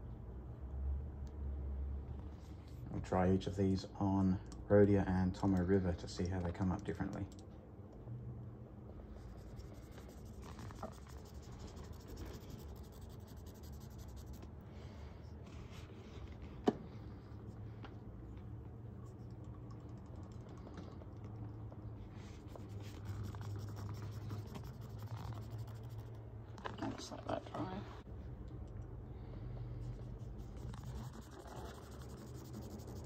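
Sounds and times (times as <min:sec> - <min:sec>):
cotton swab scratching on paper: 0:09.2 - 0:14.5, 0:22.3 - 0:26.2, 0:29.8 - 0:33.0.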